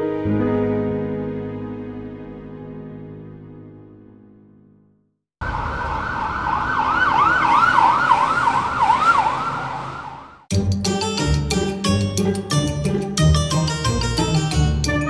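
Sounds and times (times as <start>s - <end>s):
soft keyboard music: 0.0s - 4.9s, 10.5s - 15.0s
emergency vehicle siren wailing: 5.4s - 10.5s
traffic noise: 5.4s - 10.5s.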